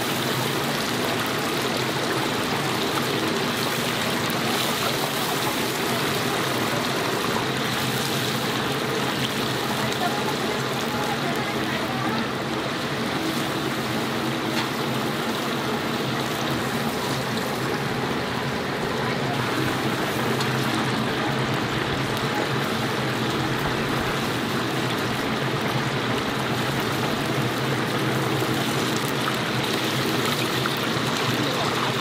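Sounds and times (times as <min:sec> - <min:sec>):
chicken deep-frying in oil: 0:00.0 - 0:32.0.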